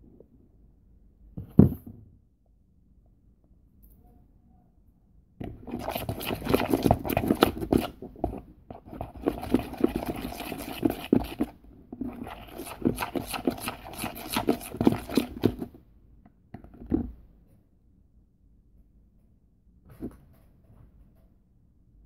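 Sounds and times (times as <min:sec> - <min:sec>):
sticky glue squelching: 0:05.5 - 0:15.7.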